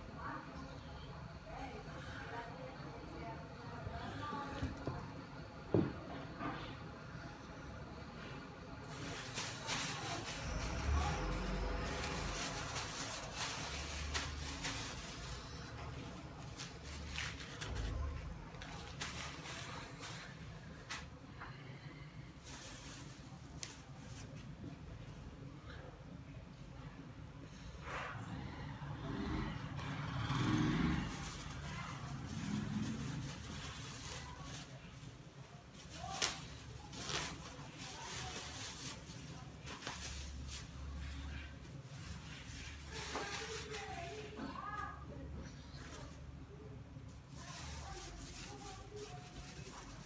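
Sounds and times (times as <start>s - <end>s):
plastic bag crinkling: 8.8s - 20.4s, 30.9s - 35.1s, 35.7s - 44.3s.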